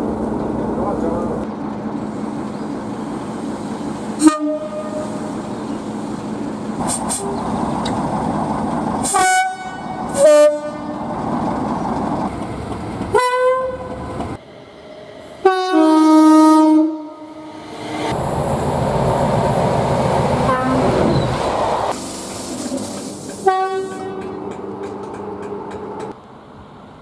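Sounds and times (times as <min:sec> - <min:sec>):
diesel locomotive engine running: 0:00.0 - 0:15.4
two-tone locomotive horn: 0:04.2 - 0:05.2, 0:09.0 - 0:11.0, 0:13.1 - 0:14.0, 0:15.4 - 0:17.5, 0:20.5 - 0:21.1, 0:23.4 - 0:24.4.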